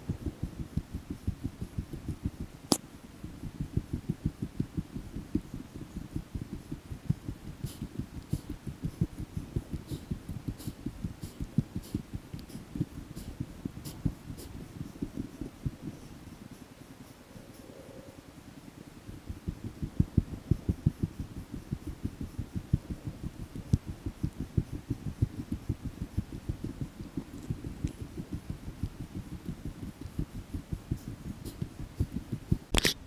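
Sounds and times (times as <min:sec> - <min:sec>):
sharp click: 0:32.7 - 0:33.0.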